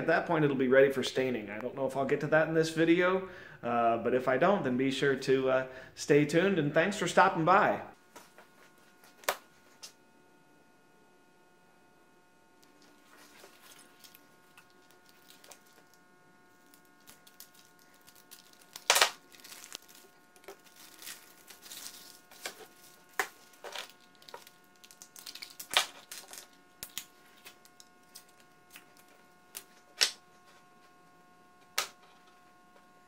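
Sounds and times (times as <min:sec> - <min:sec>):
plastic packaging crinkling: 0:12.6 - 0:30.2.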